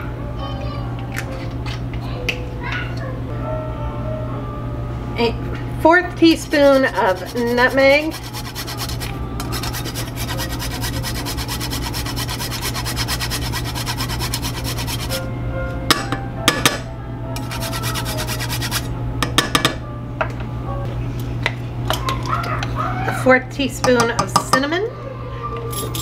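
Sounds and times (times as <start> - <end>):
nutmeg scraping on a grater: 6.2 - 15.2, 17.4 - 18.9.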